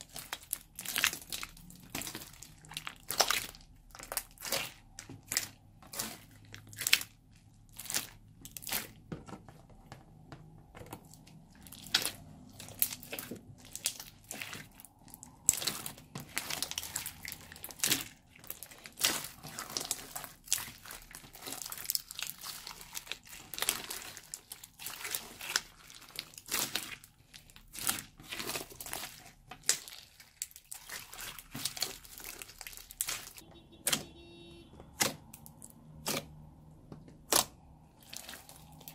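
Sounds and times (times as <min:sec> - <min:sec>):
slime squelching and crackling: 0:00.0 - 0:38.9.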